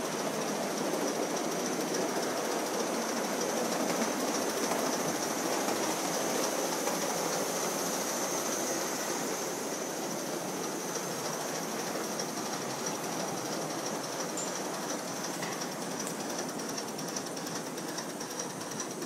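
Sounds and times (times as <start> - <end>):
hissing rush of steam: 0.0 - 19.0
wheels on rail: 0.0 - 19.0
thin high tone: 14.3 - 15.1.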